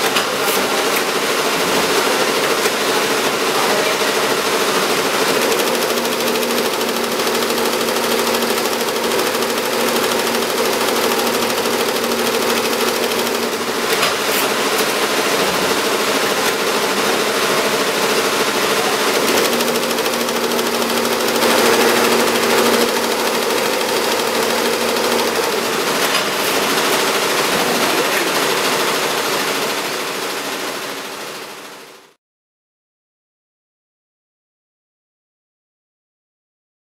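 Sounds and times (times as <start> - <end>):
embroidery machine clattering: 0.0 - 31.2
steady machine hum: 2.8 - 30.0.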